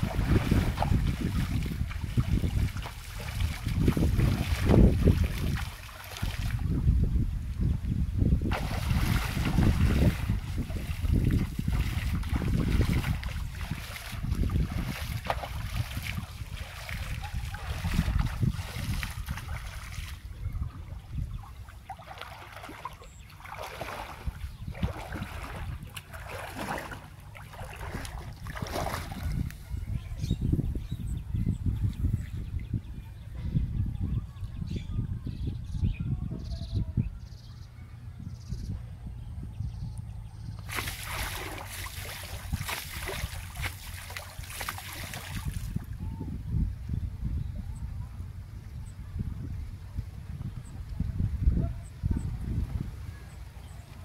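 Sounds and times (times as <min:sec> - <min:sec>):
net splashing into water: 0:00.0 - 0:06.6, 0:08.4 - 0:20.2, 0:21.8 - 0:29.4, 0:40.7 - 0:45.8
water sloshing from wading: 0:00.0 - 0:06.8, 0:08.4 - 0:29.9, 0:40.6 - 0:45.9
wind rumble on microphone: 0:00.0 - 0:54.0
low steady rumble: 0:36.8 - 0:42.6, 0:45.7 - 0:54.0.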